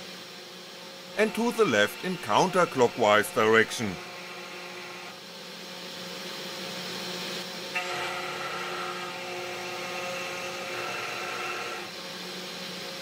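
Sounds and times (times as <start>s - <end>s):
spindle motor whine: 1.0s - 5.2s, 7.4s - 12.8s
end mill cutting acrylic: 1.2s - 5.2s, 7.8s - 11.9s.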